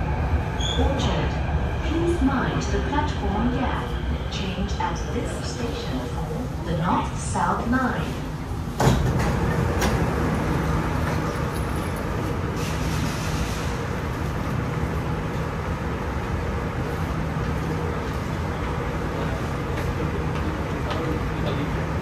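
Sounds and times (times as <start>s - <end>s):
train rumble and hum: 0.0s - 22.0s
train clunk: 8.8s - 12.0s.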